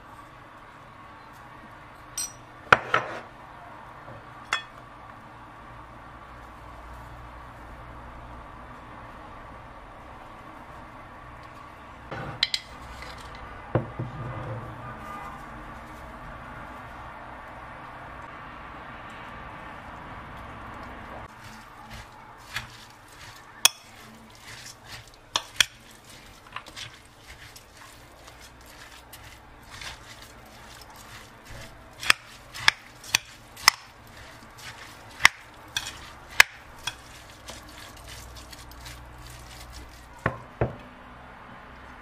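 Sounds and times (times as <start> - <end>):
spoon clinking against ceramic bowl: 2.2 - 2.4
spoon stirring wet filling: 20.8 - 40.4.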